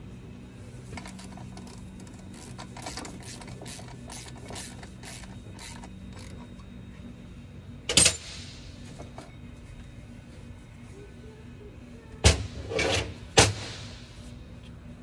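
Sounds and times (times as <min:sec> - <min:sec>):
ratchet wrench clicking: 0:01.0 - 0:06.4.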